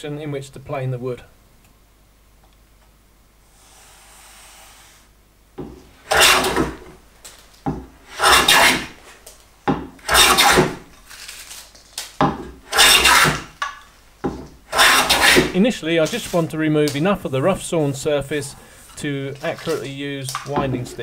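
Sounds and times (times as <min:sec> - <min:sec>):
hand plane scraping wood: 0:05.6 - 0:07.0, 0:07.7 - 0:09.2, 0:10.0 - 0:10.9, 0:12.3 - 0:13.6, 0:14.3 - 0:16.5.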